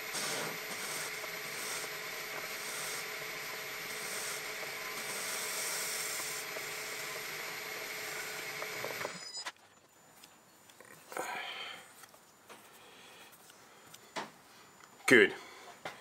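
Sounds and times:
lathe tool scraping hiss: 0:00.0 - 0:09.2
metal lathe humming: 0:00.0 - 0:09.2.

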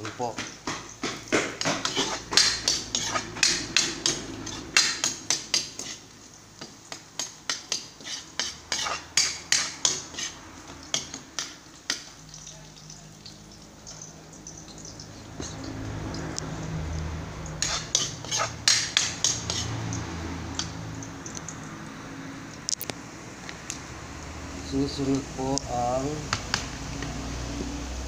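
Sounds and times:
spatula scraping a metal wok: 0:01.5 - 0:06.1, 0:07.2 - 0:12.0, 0:17.6 - 0:20.8.

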